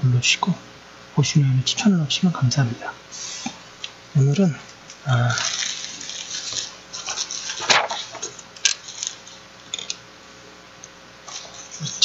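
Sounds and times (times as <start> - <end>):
plastic bag crinkling: 5.0 - 10.0.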